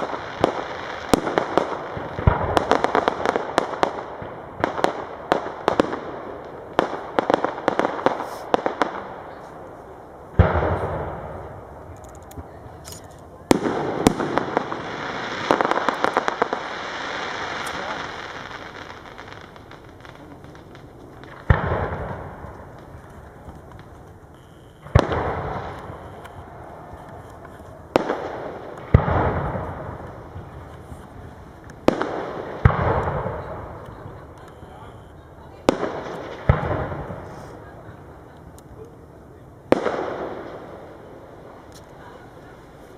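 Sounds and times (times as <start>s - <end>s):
fireworks bangs and crackles: 0.0s - 42.9s
rolling echo: 0.0s - 42.9s
heavy firework boom: 20.2s - 23.6s.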